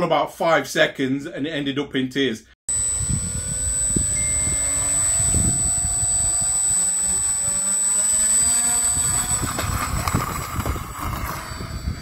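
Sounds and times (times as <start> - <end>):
model plane motor whine: 2.7 - 12.0.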